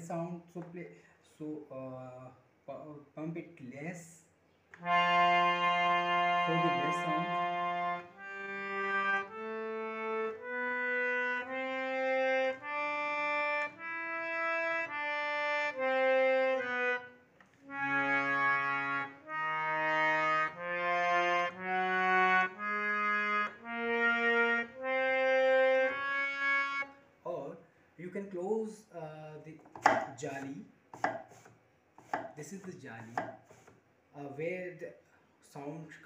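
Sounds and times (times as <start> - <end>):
harmonium slow melody: 4.8 - 27.2.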